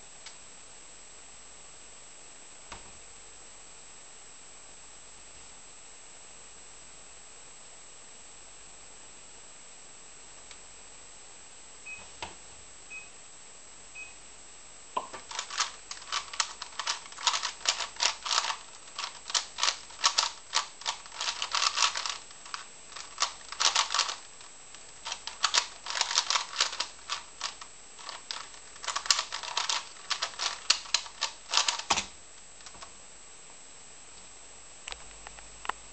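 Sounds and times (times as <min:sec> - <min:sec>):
plastic cube clicking: 0:15.2 - 0:24.3, 0:25.0 - 0:32.8.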